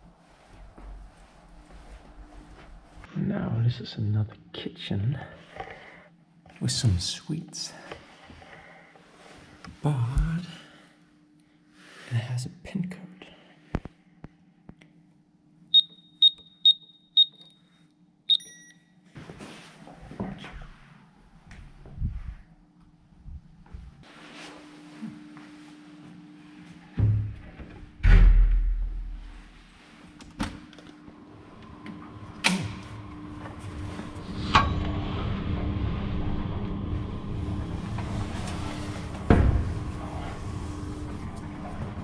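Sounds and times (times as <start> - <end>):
faint steady hum: 0.0 - 19.3
soft rustle: 0.1 - 3.1, 23.6 - 26.8
keypad beeps: 15.8 - 17.6, 18.3 - 18.8
multi-pitch signal tone: 15.8 - 17.6, 18.3 - 18.8
low rustling rumble of climbing: 34.9 - 42.0.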